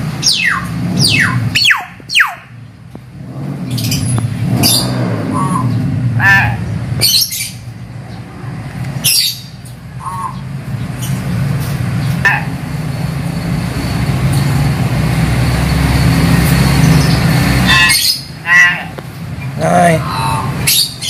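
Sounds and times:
vehicle engine rumble: 0.0 - 21.0
bird giving harsh calls: 0.2 - 2.6, 3.7 - 11.2, 12.2 - 12.7, 16.8 - 21.0.

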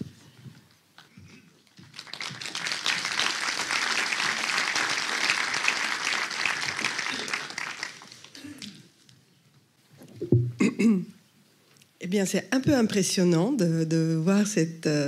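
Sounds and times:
audience applauding: 1.8 - 8.8.

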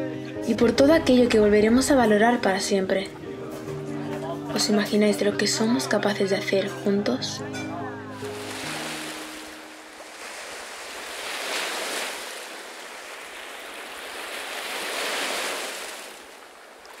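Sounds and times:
surf washing up a beach: 8.2 - 17.0.

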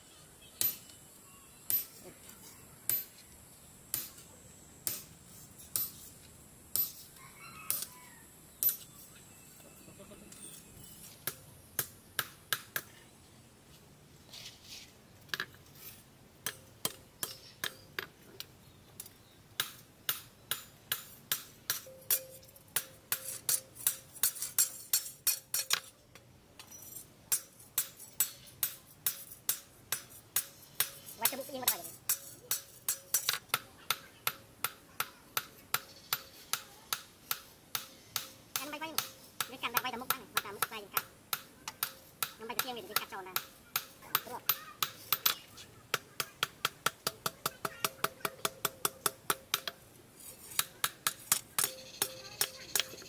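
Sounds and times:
hammer striking steel on anvil: 0.6 - 0.9, 2.9 - 3.2, 3.9 - 4.2, 4.8 - 5.1, 5.7 - 6.1, 6.7 - 7.0, 19.6 - 25.9, 27.3 - 49.8, 50.5 - 53.0.

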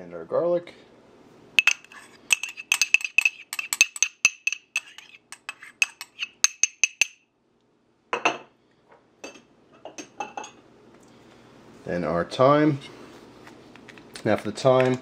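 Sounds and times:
spoon tapping small dish: 1.6 - 4.7, 5.4 - 7.2.

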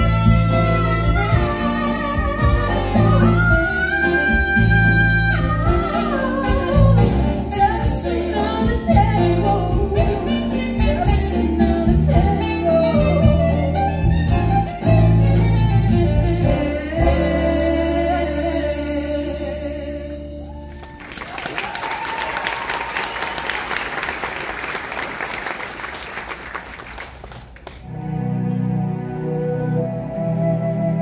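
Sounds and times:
woman singing a song: 1.5 - 13.5
audience applauding: 20.6 - 27.9.

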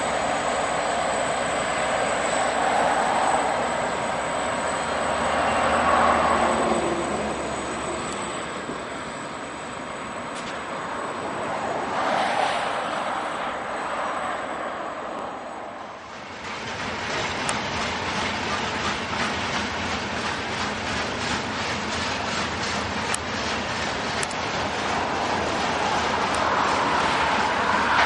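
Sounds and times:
diesel locomotives running: 0.0 - 28.0
train wheels clacking over rail joints: 16.1 - 28.0.

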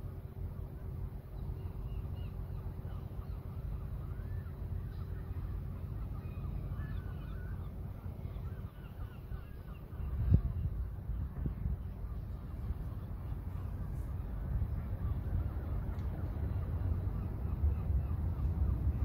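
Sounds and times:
low wind rumble: 0.0 - 19.0.

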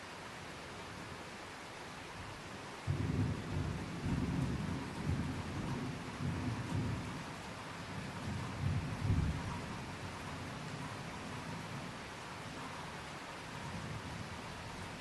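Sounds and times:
rain hiss: 0.0 - 15.0
thunder rumbling: 2.9 - 7.1.

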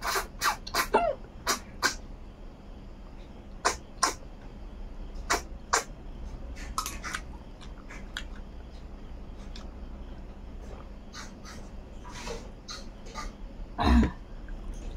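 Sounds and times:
lip smacks: 6.6 - 8.8.

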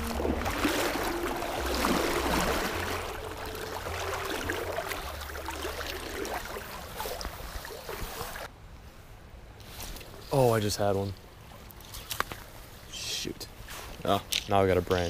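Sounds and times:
creek water rushing and splashing: 0.0 - 8.5.

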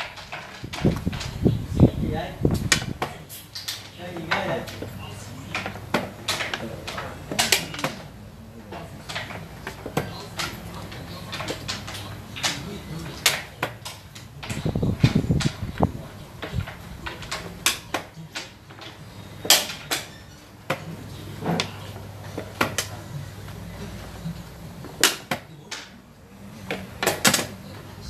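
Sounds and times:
game pieces clacking on wooden board: 2.6 - 23.0, 24.8 - 25.9.

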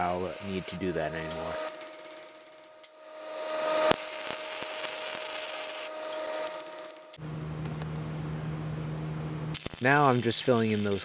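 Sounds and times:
welder arc crackling and hissing: 0.0 - 1.6, 3.8 - 6.0, 9.5 - 11.0
low steady hum: 0.0 - 1.8, 5.9 - 10.3.

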